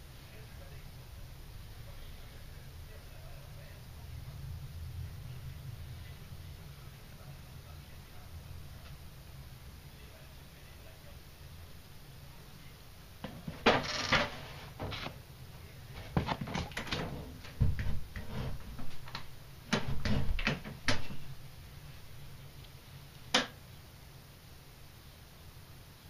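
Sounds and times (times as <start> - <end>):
camera handling knocks and rustles: 16.1 - 16.9.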